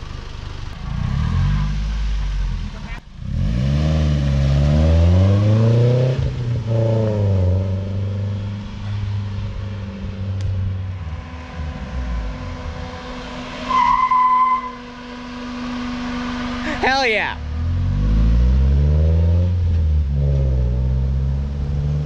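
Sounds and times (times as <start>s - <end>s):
car engine revving: 0.0s - 22.0s
loud squeal: 13.4s - 15.0s.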